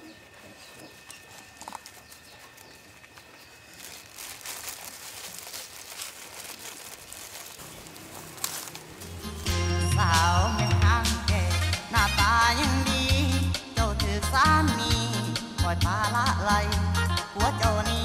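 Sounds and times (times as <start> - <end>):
plastic bag crinkling: 0.0 - 9.6
music: 9.0 - 18.0.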